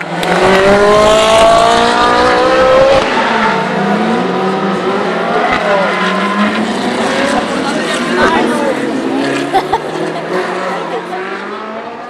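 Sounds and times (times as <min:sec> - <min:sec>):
race car engine accelerating: 0:00.0 - 0:12.0.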